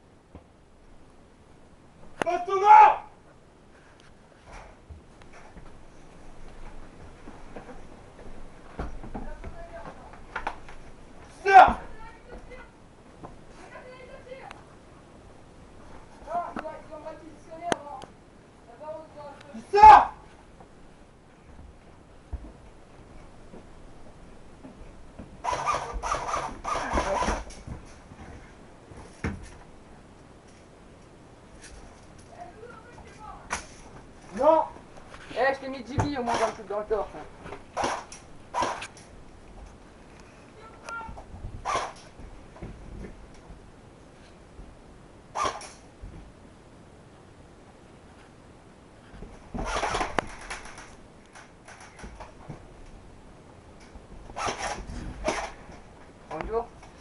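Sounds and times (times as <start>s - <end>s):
airsoft rifle bursts: 37.8s - 38.9s, 41.6s - 42.0s, 49.6s - 52.0s, 54.4s - 55.6s.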